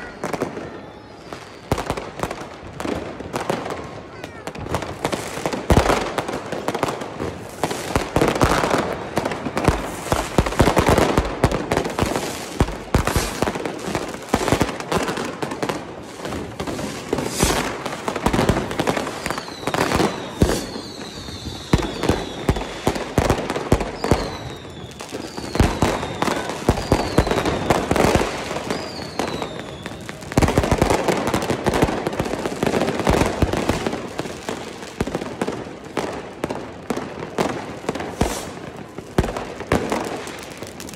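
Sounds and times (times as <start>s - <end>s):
falling firework whistles: 0.0s - 2.5s, 11.8s - 15.2s, 16.0s - 30.5s, 37.9s - 38.8s
fireworks banging and crackling: 0.0s - 40.9s.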